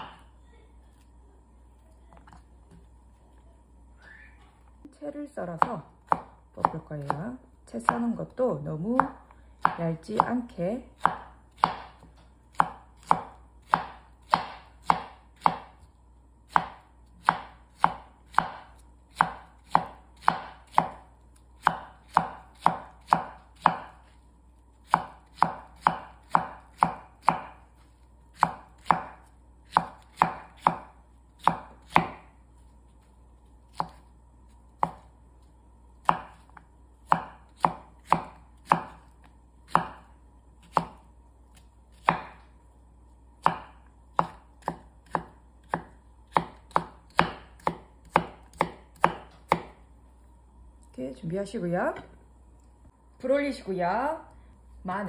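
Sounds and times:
knife chopping on wooden board: 5.6s - 7.2s, 9.0s - 10.4s, 11.0s - 15.8s, 16.5s - 24.1s, 24.8s - 27.7s, 28.3s - 32.3s, 33.7s - 34.1s, 34.7s - 35.1s, 36.0s - 39.1s, 39.7s - 42.4s, 43.4s - 49.8s.

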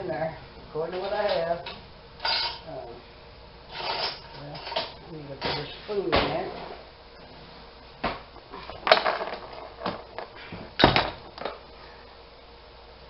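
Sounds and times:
kitchen utensils clattering: 0.9s - 2.7s, 3.7s - 6.7s.

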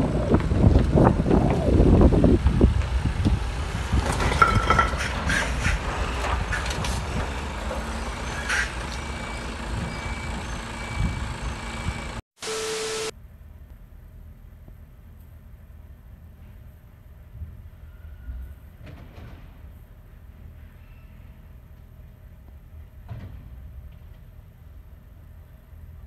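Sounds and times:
wind buffeting microphone: 0.0s - 12.2s
lorry diesel engine running: 0.0s - 13.1s
wheels rolling over paving slabs: 0.1s - 11.7s
paving slabs cracking: 2.4s - 9.2s.

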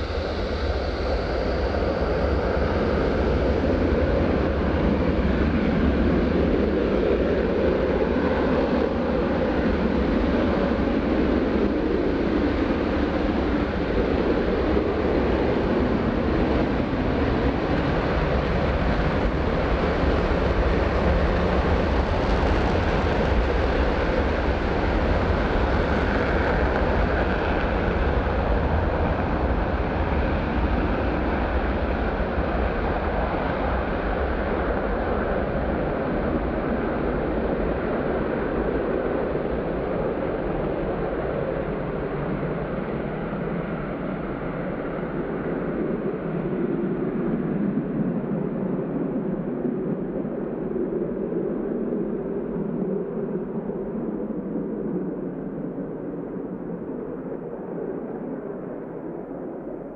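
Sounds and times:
jet engines roaring at takeoff: 0.0s - 59.9s.

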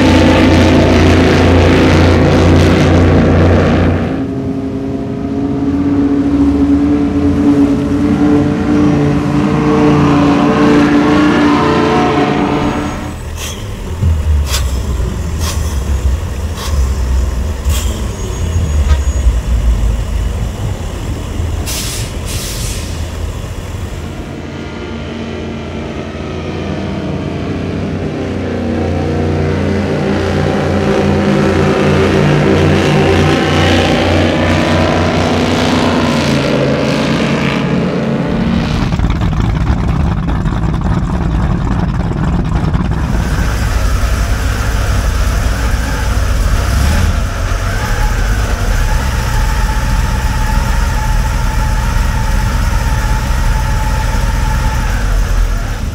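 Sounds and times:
powerboat engines rumbling: 0.0s - 55.9s.

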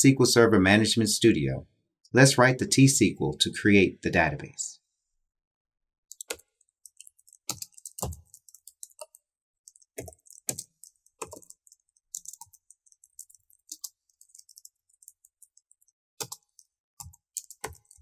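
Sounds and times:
computer keyboard typing: 6.1s - 18.0s.

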